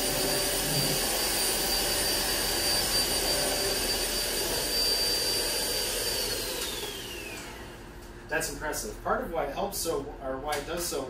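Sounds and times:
vacuum motor winding down: 0.0s - 8.1s
vacuum cleaner running: 0.0s - 9.2s.

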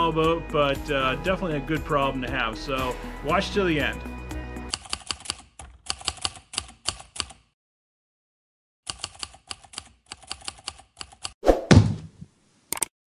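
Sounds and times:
typewriter keys clacking: 4.7s - 7.4s, 8.9s - 11.3s.

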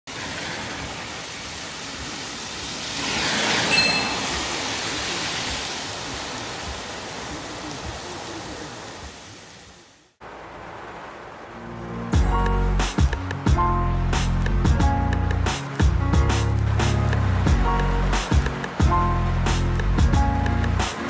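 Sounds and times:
heavy rain hissing: 0.1s - 21.0s
short bright chime: 3.7s - 4.7s.

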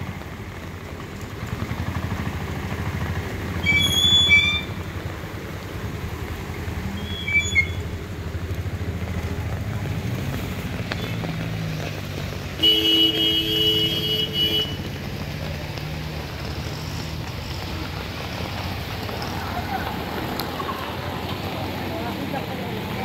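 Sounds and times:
engine running at low revs: 0.0s - 23.0s
traffic driving through water: 0.0s - 23.0s
vehicle horn honking: 12.6s - 14.8s.

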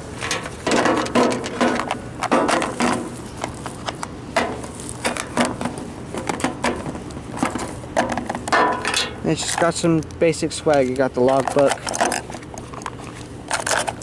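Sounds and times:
plastic scraping against metal: 10.7s - 14.0s.

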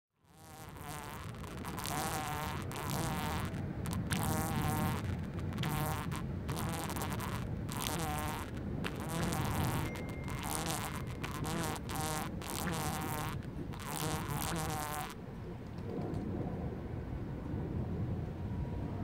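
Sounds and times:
insect buzzing: 0.2s - 15.2s.

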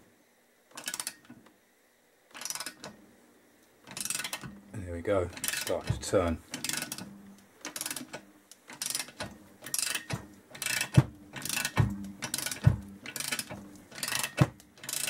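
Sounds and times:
ratchet pawl clicking: 0.7s - 1.3s, 2.3s - 2.9s, 3.9s - 4.4s, 5.3s - 5.9s, 6.5s - 15.0s
dull knock of ratchet: 5.4s - 15.0s.

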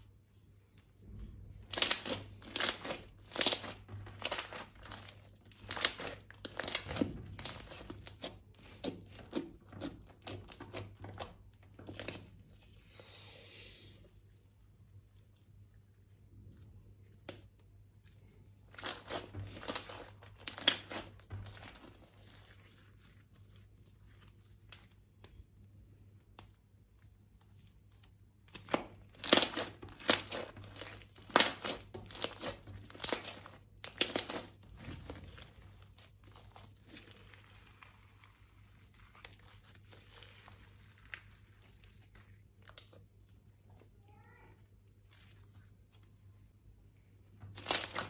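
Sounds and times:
plastic crinkling: 1.6s - 12.7s, 16.4s - 25.6s, 26.9s - 43.8s, 47.4s - 48.0s.

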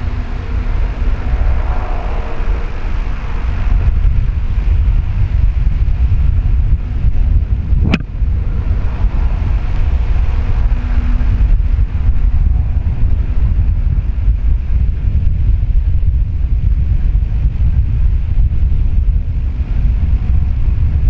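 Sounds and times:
distant diesel locomotive drone: 0.0s - 7.0s, 8.0s - 15.0s
wind buffeting microphone: 0.0s - 21.0s
sharp click: 7.8s - 8.1s.

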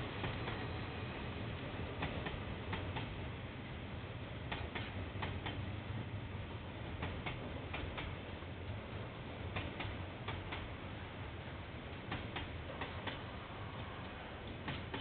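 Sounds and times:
train wheels clicking over rail joint: 0.1s - 0.8s, 2.0s - 3.2s, 4.5s - 5.7s, 7.0s - 8.2s, 9.5s - 10.8s, 11.9s - 15.0s.

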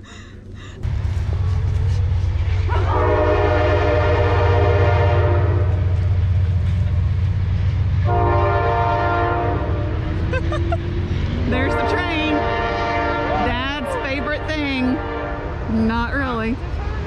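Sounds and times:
train rumbling: 0.0s - 17.0s
train horn blasts: 2.7s - 6.0s, 8.0s - 10.0s, 11.5s - 15.7s.

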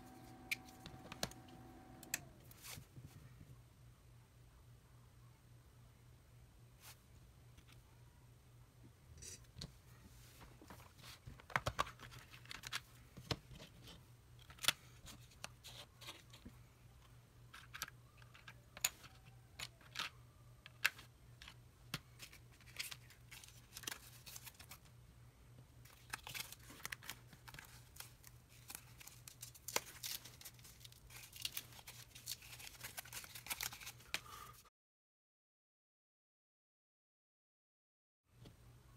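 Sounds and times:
steady low hum: 0.0s - 10.8s
handling small parts and plastic: 10.4s - 34.6s.

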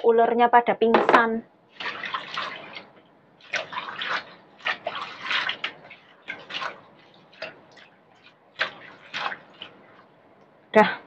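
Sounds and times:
water splashing in a colander: 1.7s - 10.1s.

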